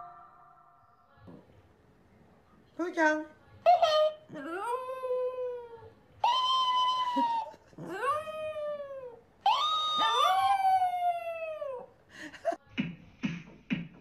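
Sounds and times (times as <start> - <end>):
dog howling: 4.0 - 11.9.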